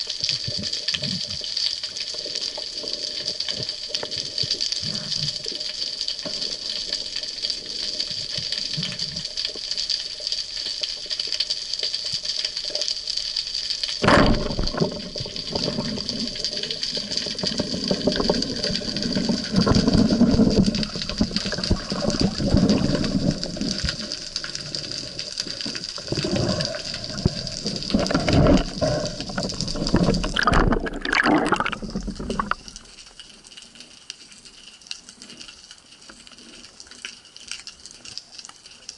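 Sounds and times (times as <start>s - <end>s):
water churning over camera: 14.0s - 33.0s
underwater hiss: 15.5s - 32.6s.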